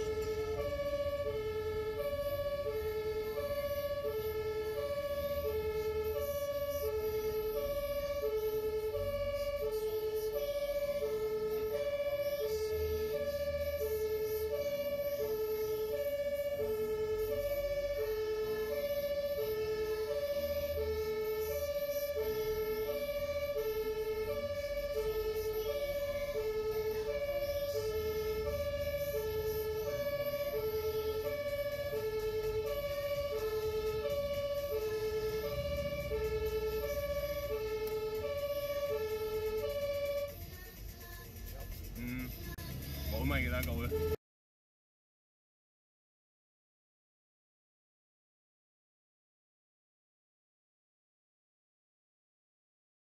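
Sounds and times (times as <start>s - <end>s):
two-tone ambulance siren: 0.0s - 40.8s, 43.1s - 44.2s
engine and road noise rumble: 0.0s - 44.2s.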